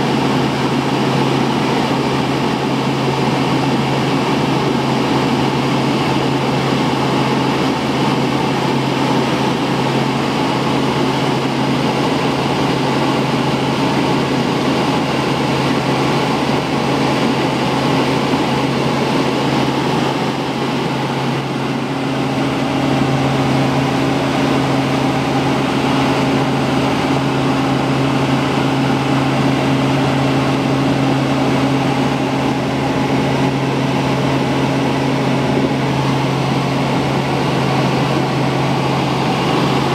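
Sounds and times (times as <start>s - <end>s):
helicopter engine and rotors: 0.0s - 39.9s
higher hum: 19.2s - 39.9s.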